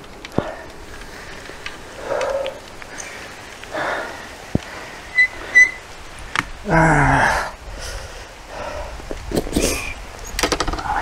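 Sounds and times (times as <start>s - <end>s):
gear rustling and clicking: 0.0s - 6.6s, 9.2s - 11.0s
man sighing: 6.6s - 8.0s.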